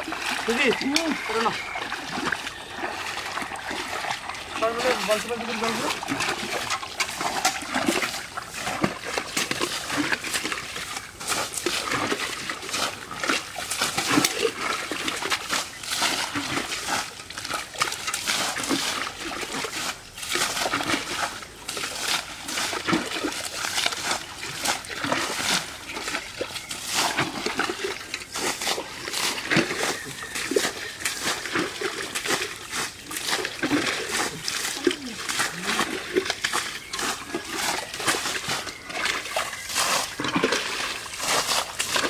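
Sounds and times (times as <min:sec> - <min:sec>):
water scooped and splashing: 0:00.0 - 0:42.0.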